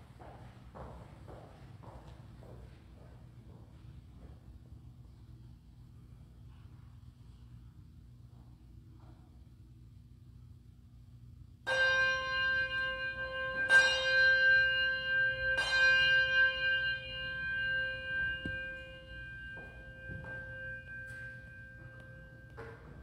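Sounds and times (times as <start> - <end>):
bell ringing: 11.7 - 23.0.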